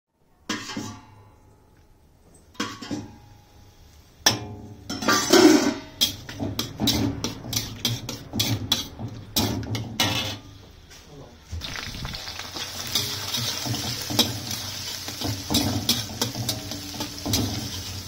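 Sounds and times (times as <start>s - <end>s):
metal spatula scraping wok: 0.5s - 1.2s, 4.8s - 10.6s, 11.8s - 18.0s.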